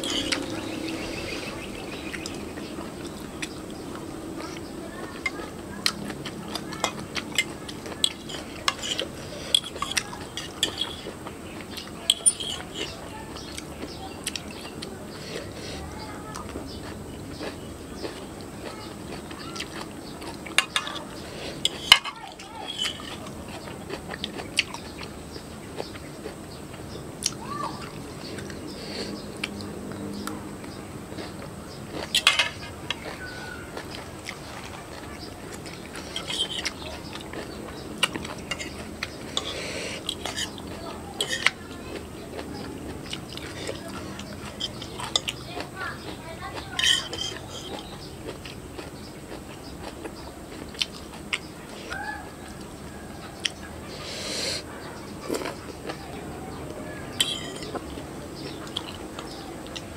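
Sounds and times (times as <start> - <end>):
chewing: 0.0 - 59.9
fork clinking against ceramic bowl: 12.0 - 13.0, 46.8 - 47.8, 57.2 - 57.8
metal spoon clinking on bowl: 57.2 - 57.8.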